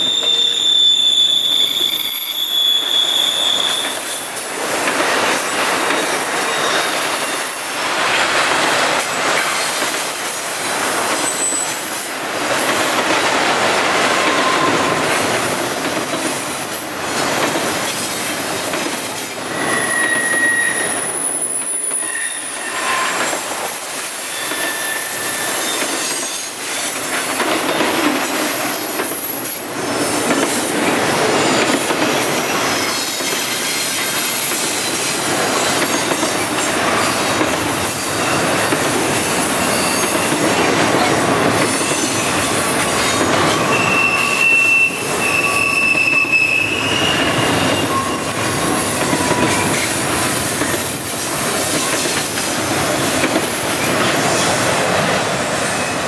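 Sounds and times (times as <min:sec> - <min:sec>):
high-pitched wheel squeals: 0:00.0 - 0:04.4, 0:19.1 - 0:23.5, 0:24.2 - 0:26.7, 0:39.3 - 0:40.4, 0:43.0 - 0:49.9
train wheels on rails: 0:00.0 - 0:56.0.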